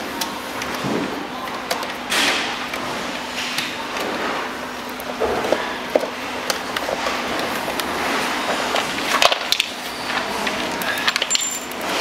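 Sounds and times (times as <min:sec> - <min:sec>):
steady background noise: 0:00.0 - 0:12.0.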